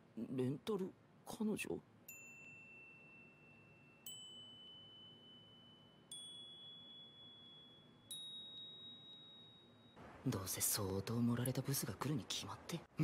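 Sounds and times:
bell-like chime: 0:02.1 - 0:10.0.

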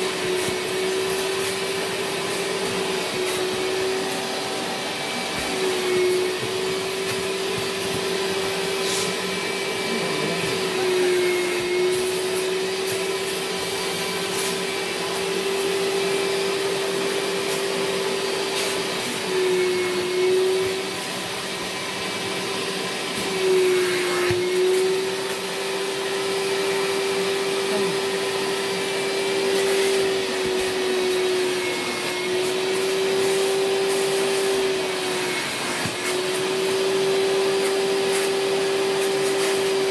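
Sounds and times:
vacuum motor whining: 0:00.0 - 0:39.9
nozzle drawn over mattress: 0:00.1 - 0:15.6.

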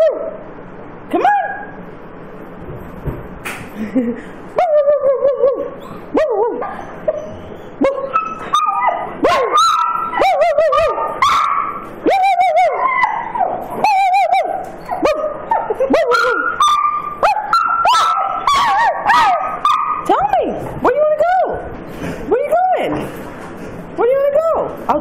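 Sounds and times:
dog whining and howling: 0:01.1 - 0:01.8, 0:04.6 - 0:20.4.

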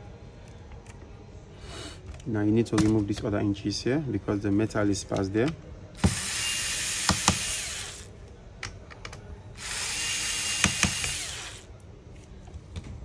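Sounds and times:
electric screwdriver whine: 0:06.0 - 0:08.1, 0:09.6 - 0:11.7.

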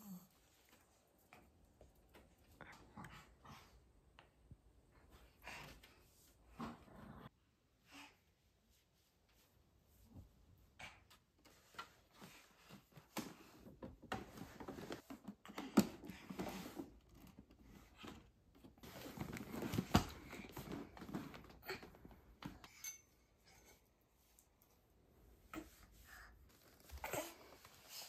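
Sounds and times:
chair pushed across floor: 0:12.8 - 0:21.6.

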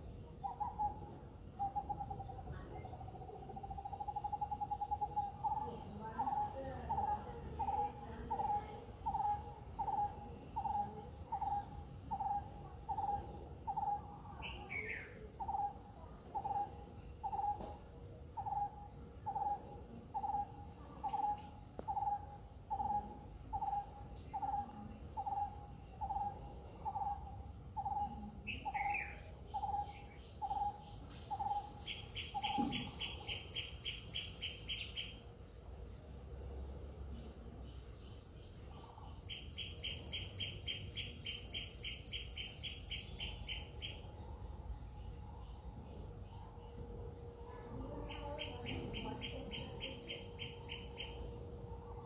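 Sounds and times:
bird low hoots: 0:18.4 - 0:35.1.

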